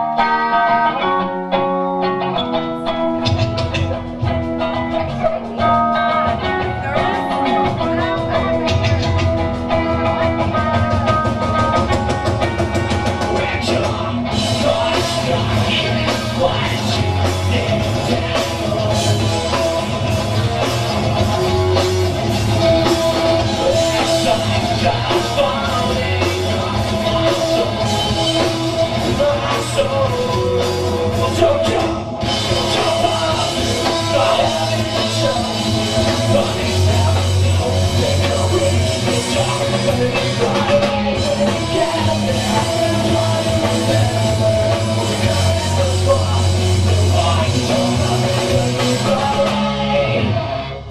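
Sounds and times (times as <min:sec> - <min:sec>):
drum kit: 0:00.0 - 0:50.9
rock band playing: 0:00.0 - 0:50.9.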